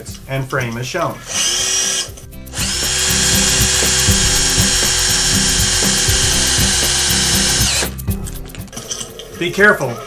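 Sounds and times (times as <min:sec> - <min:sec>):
cordless drill whining under load: 0:01.2 - 0:08.0.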